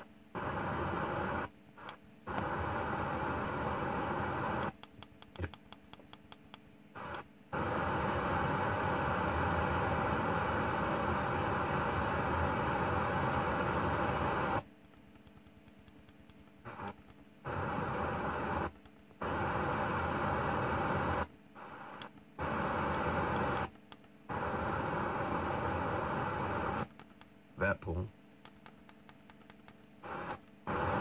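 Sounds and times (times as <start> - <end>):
radio static hiss: 0.0 - 5.6, 6.9 - 14.7, 16.6 - 23.7, 24.3 - 26.9, 27.6 - 28.1, 30.0 - 31.0
radio tuner clicks: 1.6 - 7.3, 14.3 - 19.6, 21.8 - 27.4, 28.4 - 31.0.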